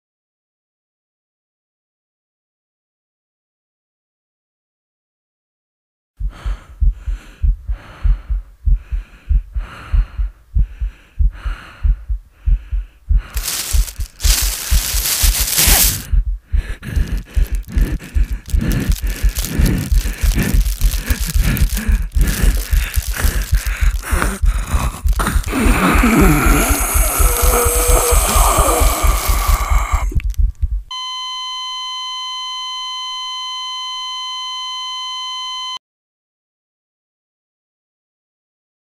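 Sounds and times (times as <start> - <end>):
heartbeat thumping: 6.2 - 30.9
low pulses: 6.2 - 30.9
rhythmic breathing: 6.2 - 30.9
plastic bag rustling: 13.3 - 16.1, 16.9 - 30.3.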